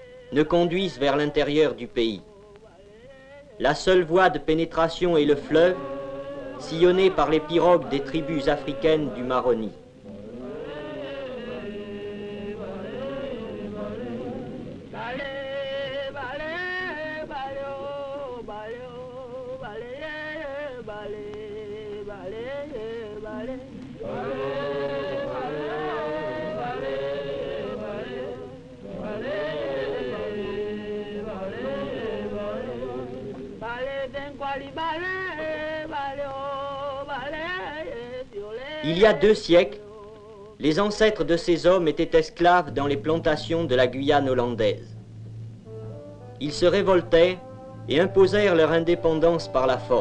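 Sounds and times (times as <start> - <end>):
voices chanting: 5.2 - 18.5, 19.6 - 39.7.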